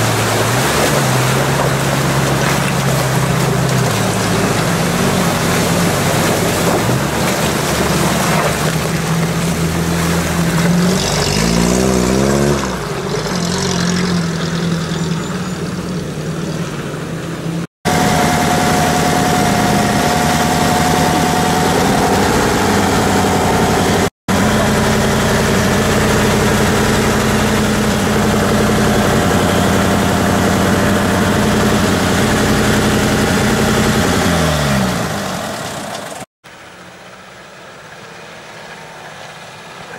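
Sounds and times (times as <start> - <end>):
rushing river water: 0.0 - 15.0
jeep engine running: 0.0 - 39.9
engine idling: 14.5 - 39.9.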